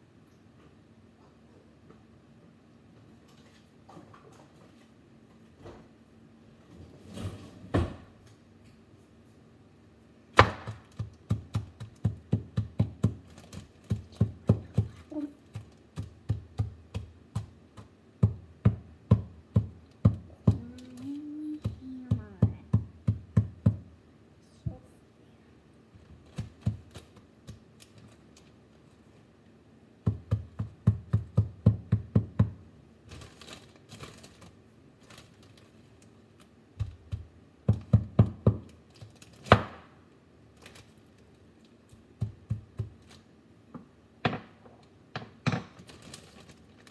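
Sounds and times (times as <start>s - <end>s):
mallet pounding bag of food: 10.4s - 20.8s, 21.5s - 23.9s, 26.2s - 27.7s, 30.0s - 32.6s, 36.8s - 38.8s, 42.2s - 43.2s.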